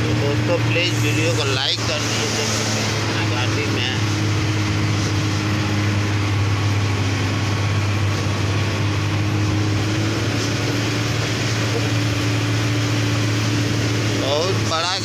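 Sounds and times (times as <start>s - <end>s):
road noise: 0.0s - 15.0s
truck engine drone: 0.0s - 15.0s.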